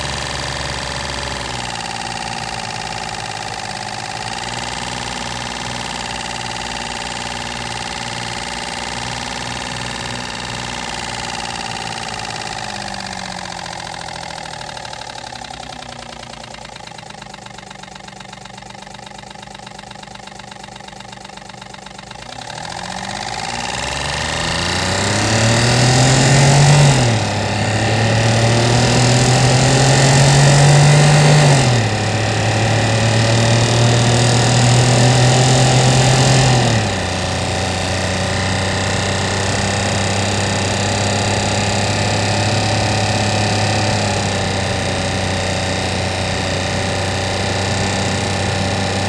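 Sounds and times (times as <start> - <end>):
cardboard fan buzzing: 0.0 - 33.3.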